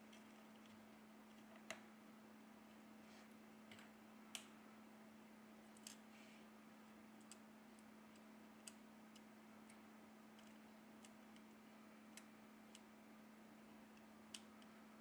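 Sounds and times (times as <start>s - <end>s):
faint low hum: 0.0s - 15.0s
small connector clicks: 3.7s - 4.6s, 14.0s - 14.7s.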